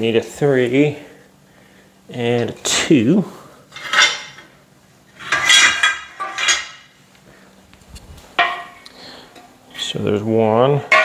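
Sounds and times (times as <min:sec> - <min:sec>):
steel parts clanking: 0:03.7 - 0:04.5, 0:05.2 - 0:07.0.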